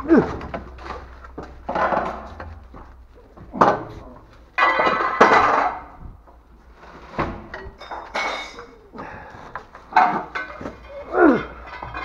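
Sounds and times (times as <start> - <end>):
hard objects knocking and clattering: 0.0 - 6.4, 9.5 - 12.0.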